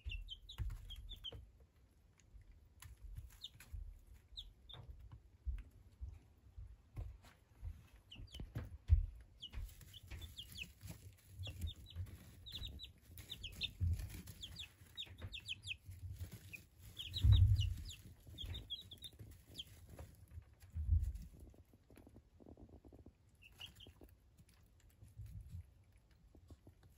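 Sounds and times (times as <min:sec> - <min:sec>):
chicks peeping: 0:00.0 - 0:26.9
low thumps: 0:17.1 - 0:18.7.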